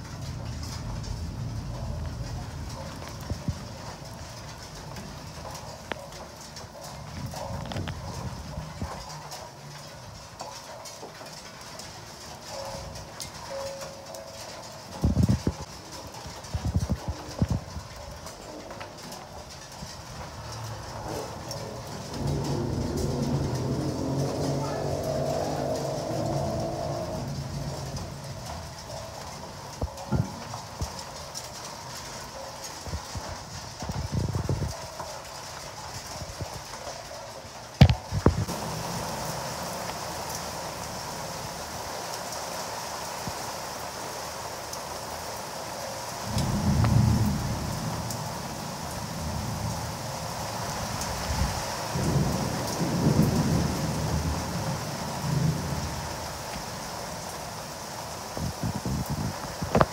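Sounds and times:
rolling thunder: 0:00.0 - 0:06.1, 0:14.8 - 0:34.9, 0:37.8 - 0:42.0, 0:46.2 - 0:59.9
heavy rain falling: 0:00.0 - 0:59.9.

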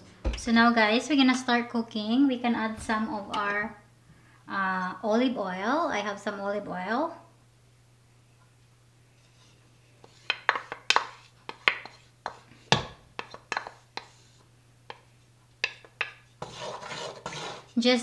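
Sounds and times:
wooden spoon scraping a bowl: 0:09.2 - 0:17.9.

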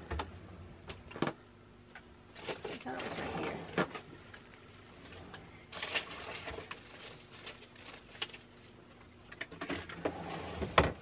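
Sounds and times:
rustling: 0:05.0 - 0:08.8.

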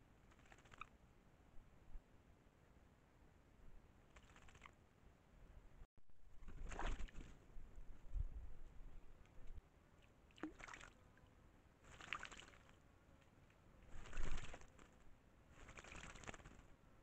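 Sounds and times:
bird splashing in water: 0:06.4 - 0:07.4, 0:10.3 - 0:11.0, 0:11.8 - 0:12.8.

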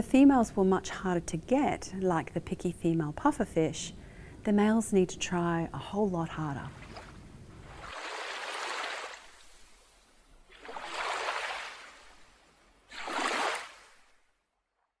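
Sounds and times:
water washing in surges: 0:07.6 - 0:09.7, 0:10.5 - 0:12.3, 0:12.9 - 0:14.1.

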